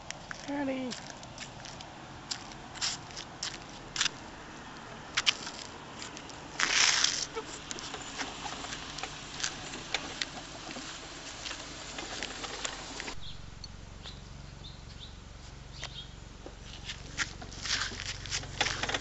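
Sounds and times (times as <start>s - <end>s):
wagon wheels rolling over pavement: 0.0s - 13.3s, 16.4s - 19.0s
wire cage rattling on rolling wagon: 6.6s - 13.1s, 17.6s - 19.0s.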